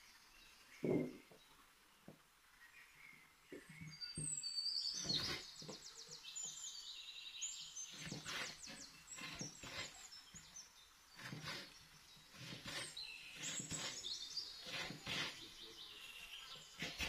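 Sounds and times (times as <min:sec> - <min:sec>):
small birds chirping: 0:00.0 - 0:17.0
knife cutting on wooden board: 0:05.0 - 0:05.8, 0:07.9 - 0:10.0, 0:11.2 - 0:15.5, 0:16.7 - 0:17.0.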